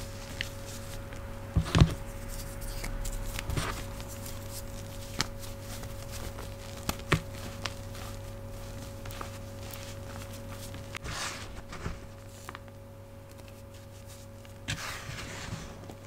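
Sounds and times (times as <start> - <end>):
fridge humming: 0.0 - 16.0.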